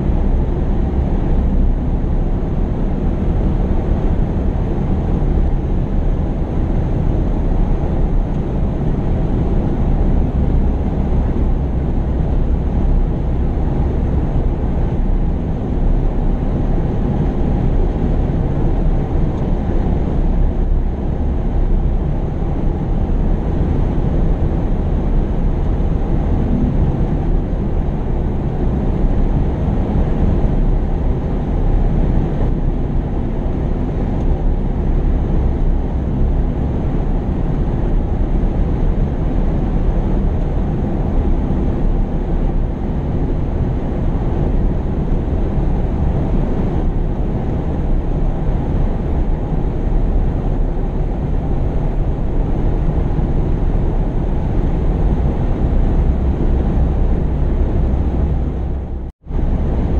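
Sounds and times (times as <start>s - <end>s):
heavy machinery diesel engines: 0.0s - 59.9s.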